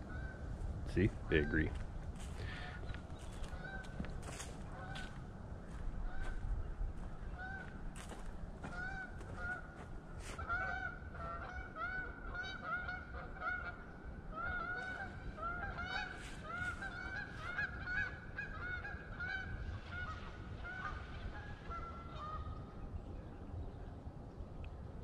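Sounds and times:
geese honking: 2.4 - 5.2, 7.3 - 22.6.

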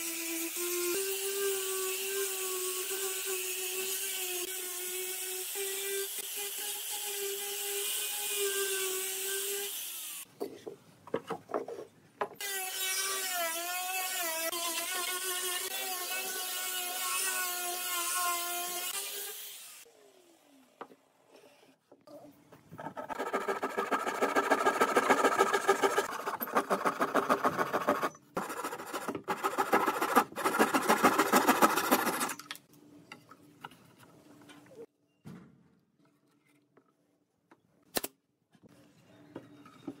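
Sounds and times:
angle grinder sanding wood: 22.8 - 32.4
steel blade scraping wooden board: 22.8 - 32.4.

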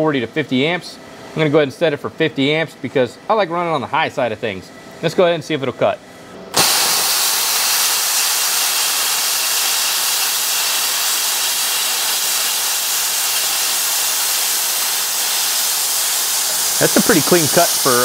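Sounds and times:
plasma arc hissing: 6.6 - 18.0.

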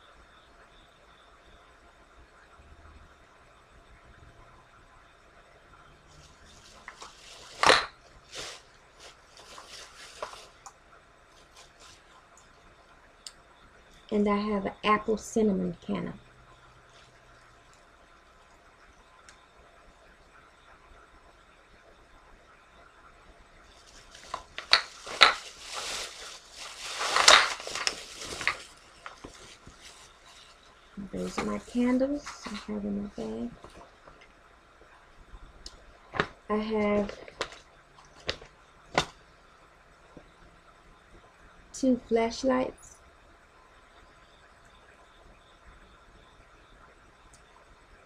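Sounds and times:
bag rustling and handling: 6.3 - 10.6, 23.7 - 32.8
candles clinking and knocking: 6.8 - 7.9, 24.0 - 29.8.

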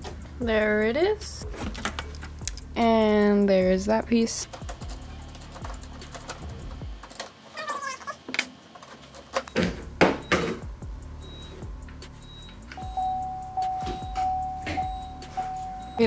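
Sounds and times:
background music: 0.0 - 7.1, 9.5 - 16.0
steady held tone: 12.2 - 16.0.

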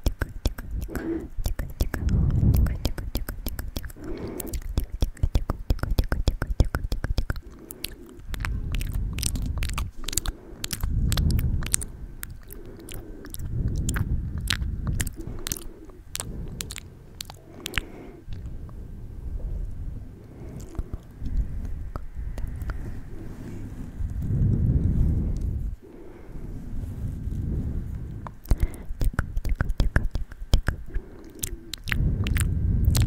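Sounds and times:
wet mouth clicks and smacks: 0.0 - 18.8, 20.2 - 22.9, 28.0 - 33.0
hands rubbing on microphone: 20.8 - 25.8, 26.5 - 28.4.

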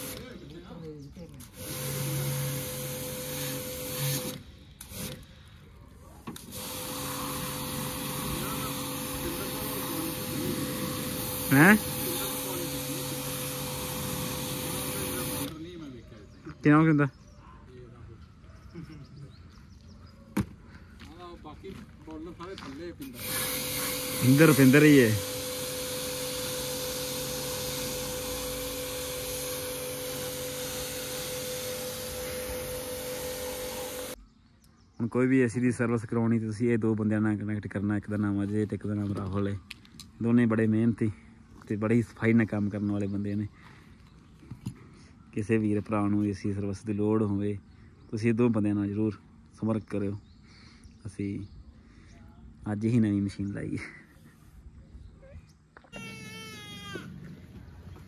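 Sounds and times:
pressure washer humming: 0.0 - 0.4, 1.4 - 5.4, 6.2 - 15.6, 23.0 - 34.2.

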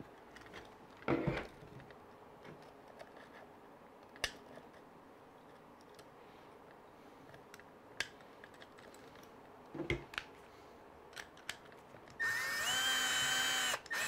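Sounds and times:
cordless drill driving a screw: 12.2 - 14.0.

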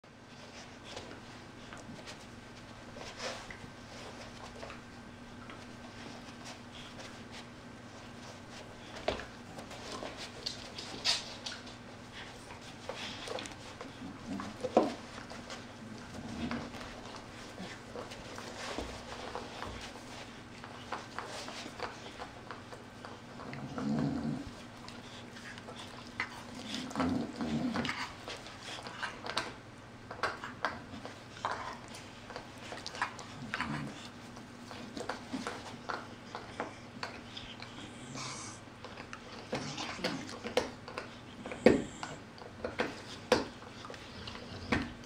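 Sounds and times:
dogs scuffling: 0.2 - 45.0
dogs snuffling: 0.2 - 45.0
dog growling: 15.8 - 16.8, 23.3 - 24.7, 26.2 - 28.2, 33.1 - 34.1, 37.7 - 38.6
dogs grunting: 23.1 - 29.4, 32.8 - 34.2, 35.4 - 40.6, 41.4 - 42.3, 43.8 - 45.0.

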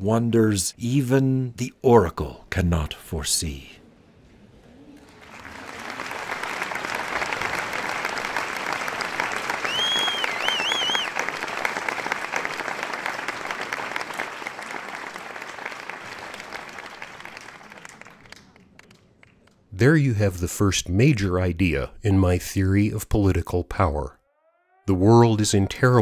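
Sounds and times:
audience applauding: 5.0 - 19.5
short whistles: 9.6 - 11.2.

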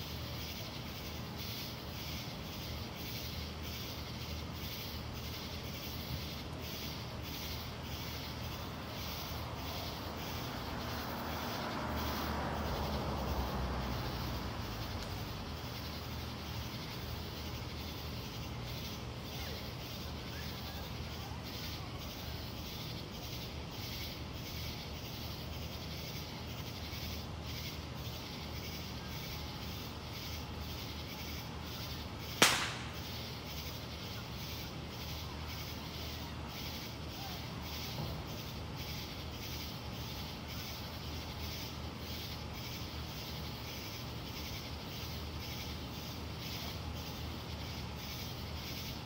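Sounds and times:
firework bang: 32.4 - 33.4.

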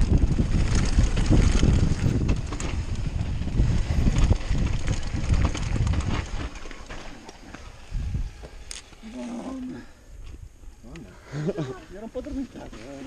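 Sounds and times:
wind buffeting microphone: 0.0 - 8.8
bike clicks and rattles: 0.0 - 9.0
bike tyres on dirt trail: 0.0 - 13.0.

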